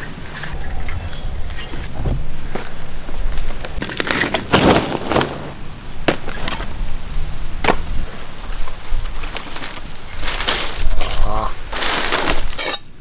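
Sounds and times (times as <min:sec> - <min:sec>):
crunching: 0:09.0 - 0:12.9.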